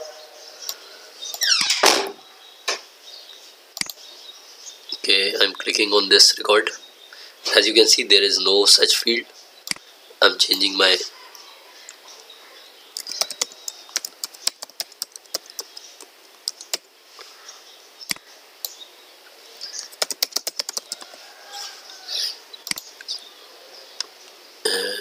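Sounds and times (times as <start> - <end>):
typing on computer keyboard: 13.0 - 15.8, 19.9 - 21.1.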